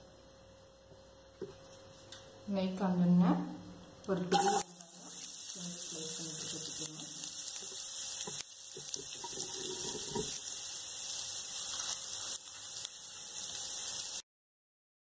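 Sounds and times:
onions sizzling in oil: 0:04.3 - 0:14.2.

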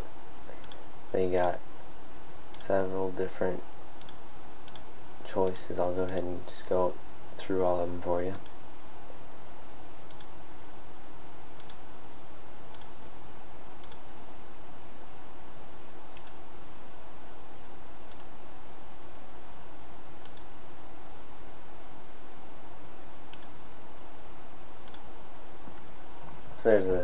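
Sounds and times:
microphone hiss: 0:00.0 - 0:27.0
computer mouse clicking: 0:00.4 - 0:00.8, 0:04.0 - 0:06.3, 0:10.1 - 0:10.3, 0:11.6 - 0:11.8, 0:12.7 - 0:12.9, 0:13.8 - 0:14.0, 0:16.1 - 0:16.4, 0:18.1 - 0:18.3, 0:20.2 - 0:20.5, 0:23.3 - 0:23.6, 0:24.8 - 0:25.1.

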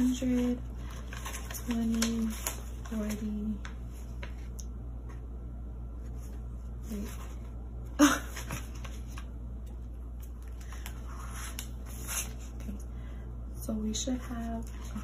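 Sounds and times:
paper banknotes rustling: 0:00.0 - 0:04.5.

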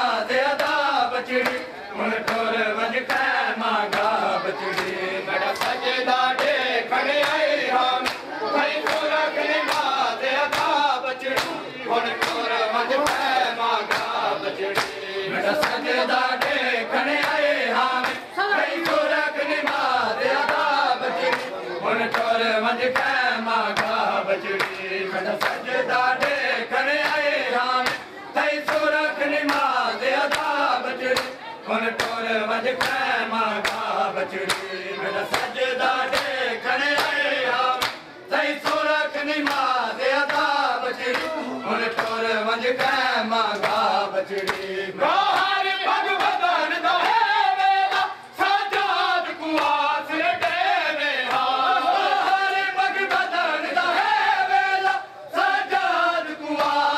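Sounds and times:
men chanting a lament: 0:00.0 - 0:56.9
hands slapping chests: 0:01.4 - 0:02.5, 0:08.0 - 0:09.1, 0:10.5 - 0:11.6, 0:12.2 - 0:16.6, 0:27.0 - 0:29.7, 0:30.3 - 0:31.4, 0:32.0 - 0:32.2, 0:32.8 - 0:33.0, 0:33.6 - 0:34.7, 0:35.3 - 0:37.2, 0:37.8 - 0:38.0, 0:38.6 - 0:39.7, 0:40.3 - 0:42.2, 0:42.8 - 0:45.6, 0:51.2 - 0:51.6.

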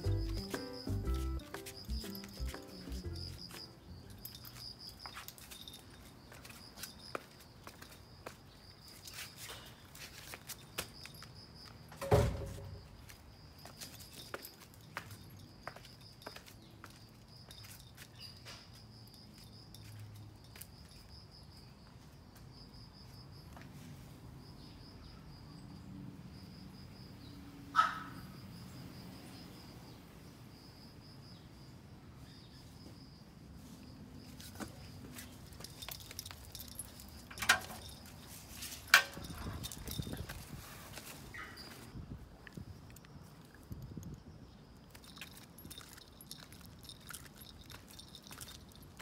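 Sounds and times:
high-pitched insect trill: 0:00.0 - 0:23.5, 0:28.2 - 0:40.7, 0:43.6 - 0:49.0
dog steps on brick paving: 0:44.8 - 0:49.0.

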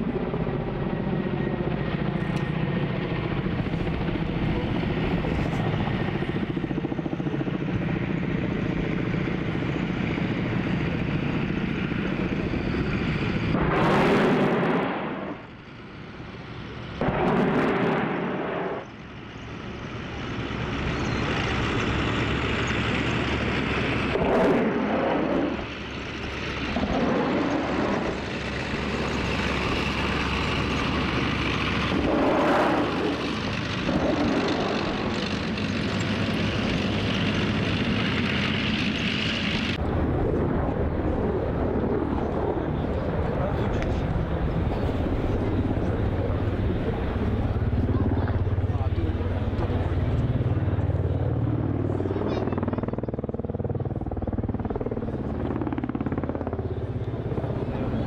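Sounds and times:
helicopter rotor drone: 0:00.0 - 0:58.0
rocket firing bursts: 0:13.5 - 0:15.4, 0:17.0 - 0:18.8, 0:24.0 - 0:25.6.

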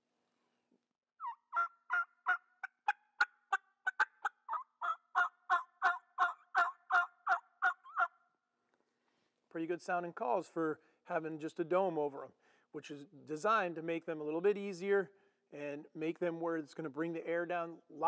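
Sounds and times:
turkey mouth call: 0:01.2 - 0:08.2.

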